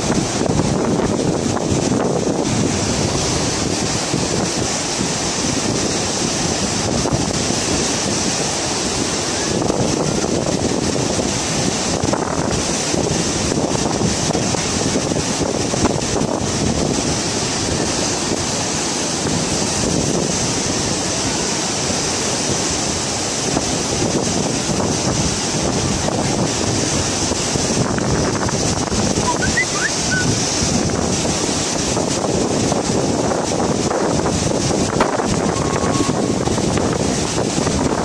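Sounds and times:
floodwater rushing: 0.0s - 38.0s
wind on microphone: 0.0s - 38.0s.

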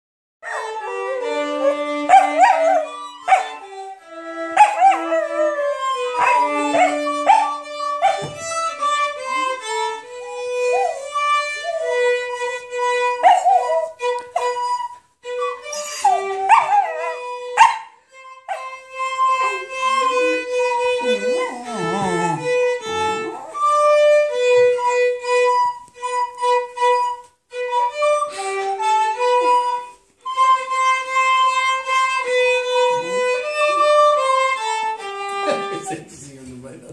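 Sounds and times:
violin music: 0.4s - 36.9s
dog howling and yipping: 0.5s - 3.7s, 4.5s - 8.3s, 13.2s - 14.0s, 16.0s - 17.8s.

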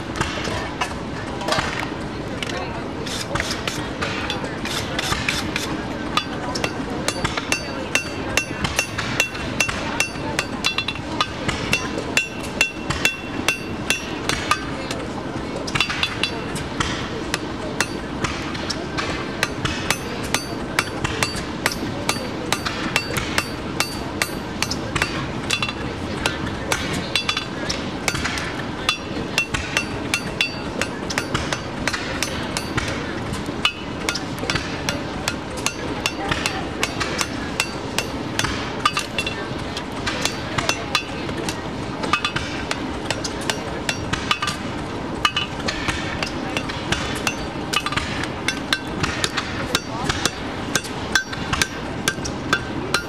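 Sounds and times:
hammer striking hot steel: 0.0s - 53.0s
anvil ringing: 50.8s - 53.0s.

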